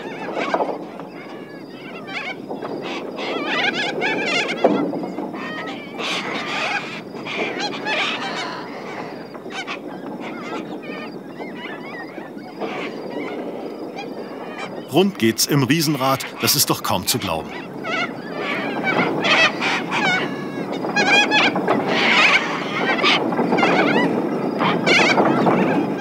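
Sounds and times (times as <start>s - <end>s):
flock of birds screeching: 5.4s - 13.4s, 17.5s - 26.0s.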